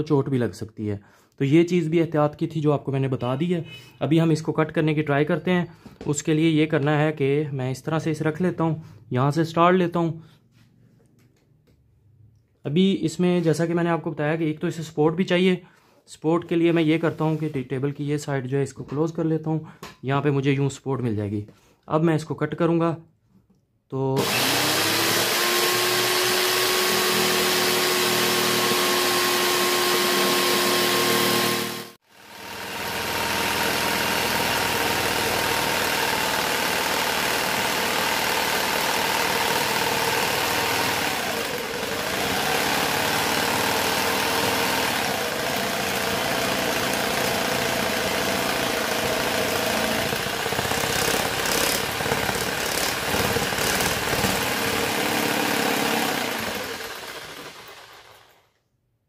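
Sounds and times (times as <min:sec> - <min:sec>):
electric jigsaw cutting plastic: 0:24.2 - 0:58.6
rattling: 0:42.7 - 0:58.4.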